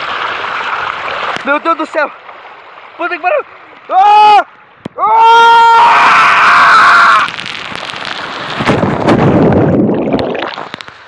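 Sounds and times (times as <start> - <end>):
rushing water: 0.0 - 11.0
man yelling: 3.2 - 7.1
muffled underwater churning: 7.3 - 11.0.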